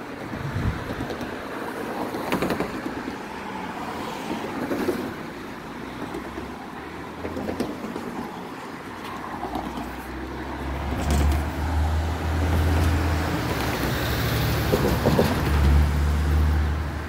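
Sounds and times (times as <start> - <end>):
cars driving past: 0.0 - 17.0.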